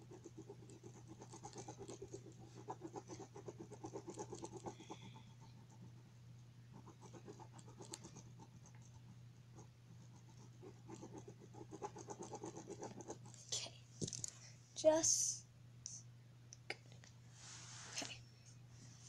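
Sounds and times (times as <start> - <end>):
pen scribbling on paper: 0.0 - 6.1, 6.7 - 13.4.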